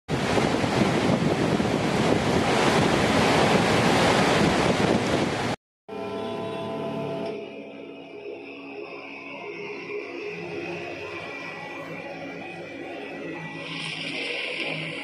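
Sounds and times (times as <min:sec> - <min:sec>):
music with sustained tones: 0:05.9 - 0:15.0.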